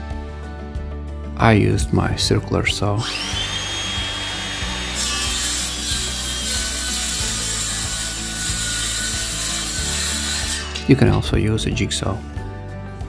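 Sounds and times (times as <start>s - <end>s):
circular saw cutting wood: 3.0s - 11.4s.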